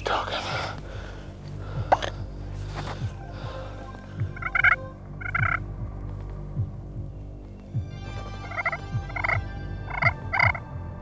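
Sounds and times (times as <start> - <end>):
turkey gobbling: 4.3 - 5.6.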